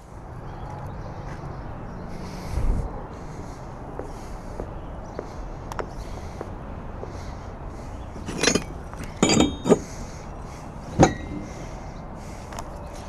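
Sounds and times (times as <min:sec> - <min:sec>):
metal parts clinking in wooden box: 0:08.2 - 0:09.9
sharp metallic clank: 0:08.2 - 0:09.9, 0:11.0 - 0:11.5.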